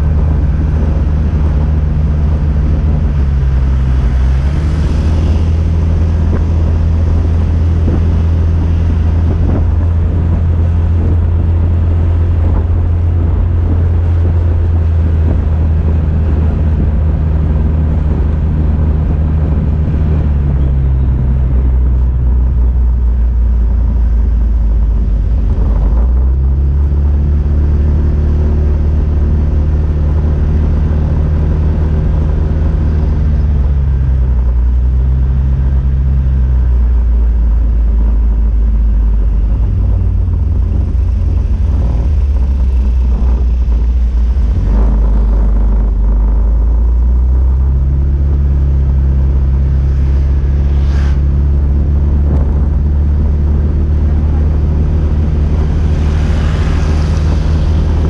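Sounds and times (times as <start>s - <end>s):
wind rumble on microphone: 0.0s - 58.0s
short rising whine: 32.0s - 58.0s
motorbike engine revving: 37.8s - 58.0s.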